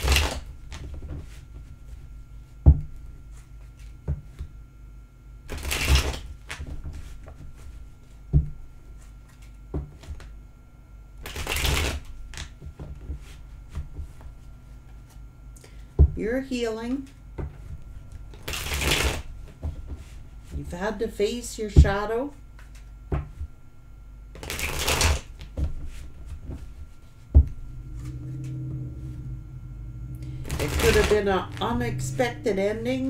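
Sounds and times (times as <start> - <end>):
cards being shuffled: 0.0 - 1.3, 5.5 - 7.4, 11.2 - 13.4, 18.3 - 19.3, 24.4 - 27.2, 30.3 - 31.7.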